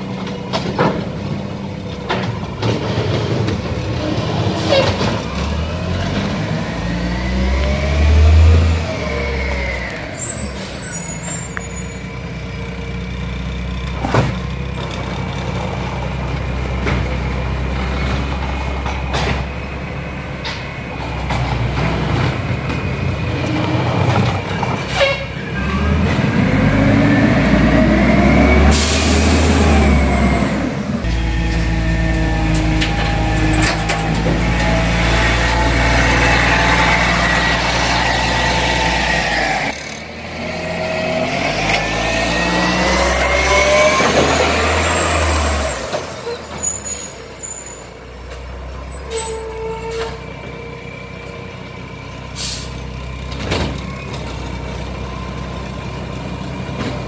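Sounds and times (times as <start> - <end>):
diesel engine running and revving: 0.0 - 57.0
machinery whining: 25.7 - 39.8.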